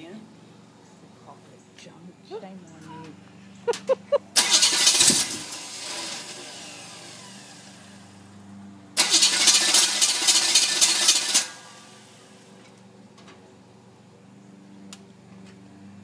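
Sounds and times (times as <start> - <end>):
engine starter cranking: 4.4 - 7.6, 9.0 - 12.0.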